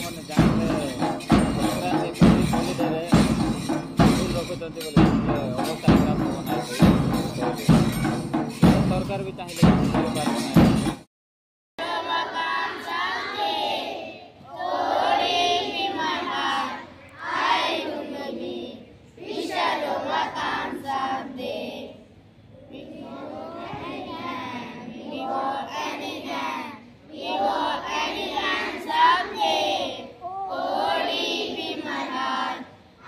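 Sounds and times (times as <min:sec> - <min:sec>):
children singing in unison: 0:11.8 - 0:22.0, 0:22.6 - 0:33.0.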